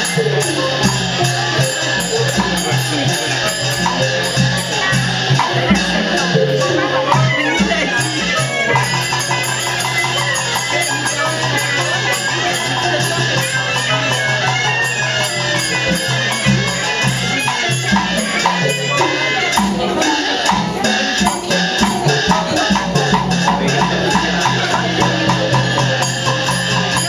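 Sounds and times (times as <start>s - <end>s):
rapid percussion and rattling: 0.0s - 27.0s.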